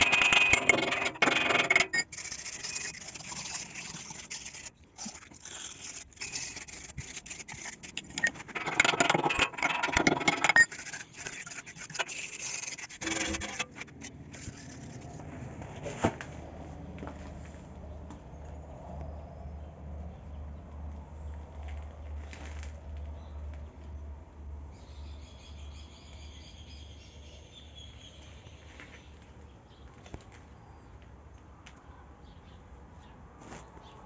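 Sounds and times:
scraping and metal taps: 0.0s - 16.3s.

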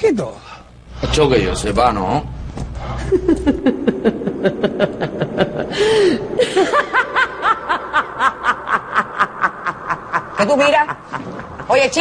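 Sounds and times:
people laughing: 2.9s - 12.0s
higher-pitched laugh: 3.0s - 11.8s.

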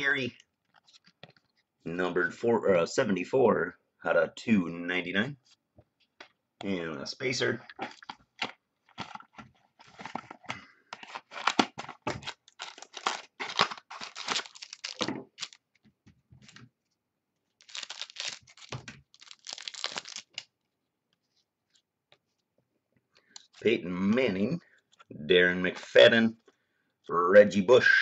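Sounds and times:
wrapper tearing and crinkling: 11.0s - 15.6s, 17.6s - 20.5s.

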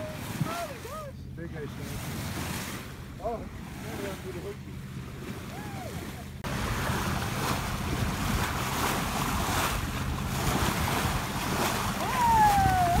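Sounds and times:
water rushing past hull: 0.0s - 13.0s
wind on microphone: 5.5s - 13.0s.

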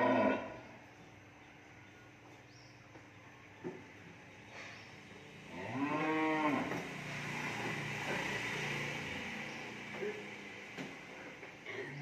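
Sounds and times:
cow mooing: 0.0s - 0.7s, 5.5s - 6.8s.

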